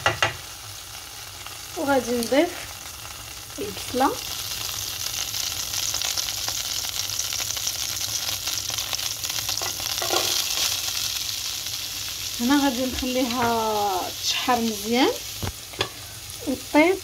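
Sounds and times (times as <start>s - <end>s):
oil sizzling in a frying pan: 0.0s - 17.0s.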